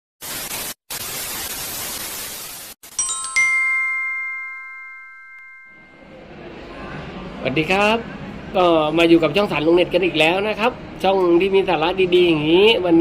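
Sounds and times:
television static hiss: 0:00.2 - 0:03.3
bright chime ringing: 0:02.9 - 0:06.5.

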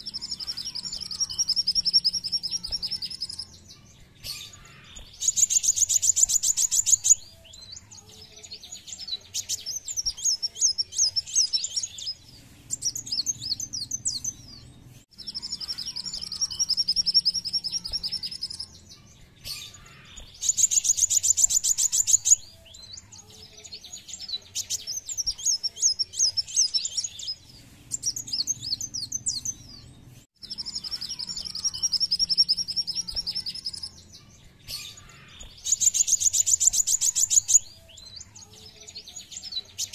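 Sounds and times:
sunbird singing trills: 0:00.0 - 0:39.9.

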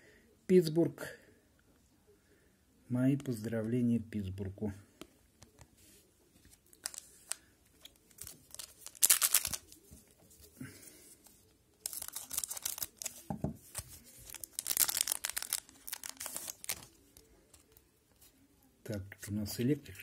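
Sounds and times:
plastic wrapper tearing and crinkling: 0:06.6 - 0:09.8, 0:11.8 - 0:17.8.

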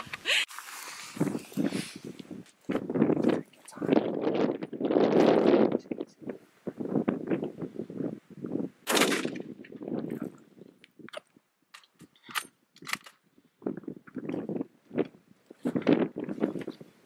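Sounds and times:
rustling: 0:00.1 - 0:02.7
rifle shot with echo: 0:08.8 - 0:09.4.

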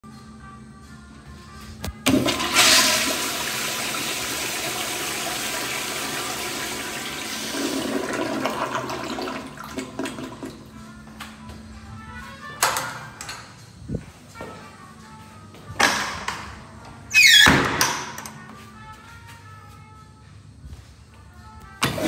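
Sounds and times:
toilet flush click: 0:02.1 - 0:10.5
toilet flushing water rush: 0:02.1 - 0:10.7.

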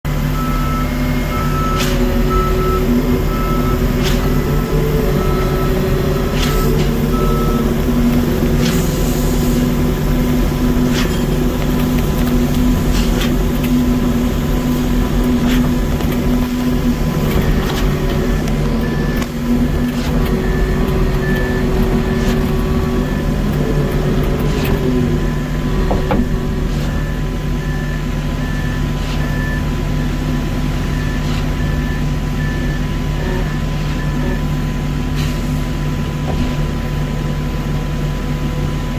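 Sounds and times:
heavy truck engine running: 0:00.0 - 0:38.9
back-up alarm beeping: 0:00.2 - 0:34.6.

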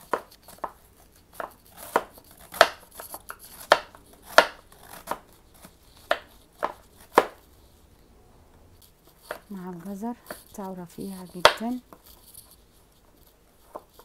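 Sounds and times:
knife chopping cabbage on board: 0:00.0 - 0:07.4, 0:09.2 - 0:09.6, 0:11.3 - 0:12.2.

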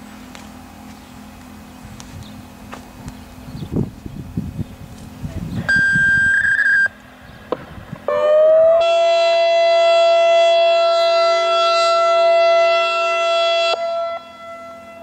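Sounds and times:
electronic siren: 0:05.7 - 0:06.9, 0:08.1 - 0:15.0.

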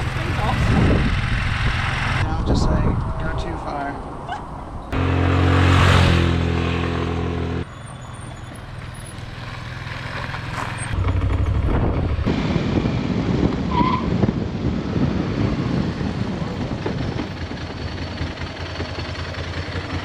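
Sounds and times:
road noise: 0:00.0 - 0:20.0
scooter engine running: 0:09.7 - 0:12.3.

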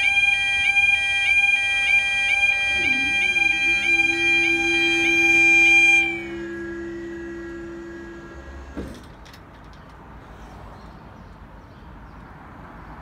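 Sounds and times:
crossing alarms: 0:00.0 - 0:09.4
barrier mechanism humming: 0:01.1 - 0:09.5
barrier boom clunk: 0:04.0 - 0:09.5.

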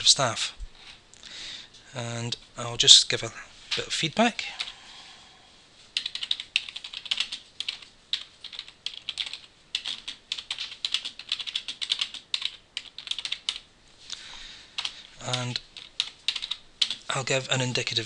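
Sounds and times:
typing on computer keyboard: 0:06.0 - 0:13.6, 0:14.8 - 0:17.1.

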